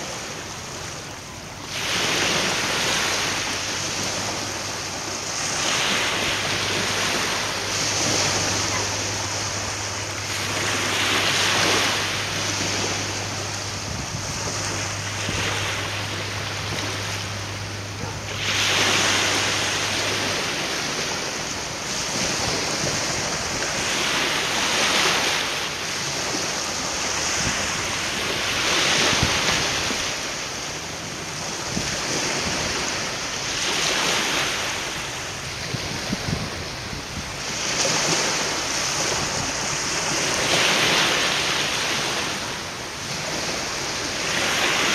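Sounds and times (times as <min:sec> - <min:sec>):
waves washing against shore: 0:00.0 - 0:44.9
wind: 0:00.0 - 0:44.9
low hum: 0:02.5 - 0:23.9.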